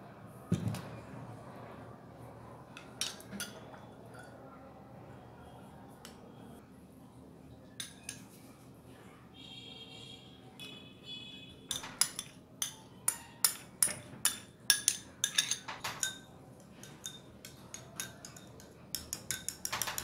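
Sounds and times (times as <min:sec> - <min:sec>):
teaspoon clinking glass bowl: 0:11.7 - 0:20.0.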